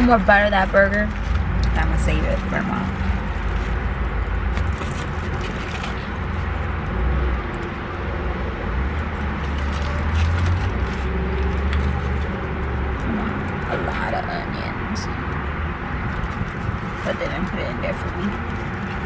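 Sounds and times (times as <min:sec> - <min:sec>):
aluminium foil crinkling: 0:00.0 - 0:06.7, 0:09.1 - 0:13.7, 0:16.0 - 0:19.0.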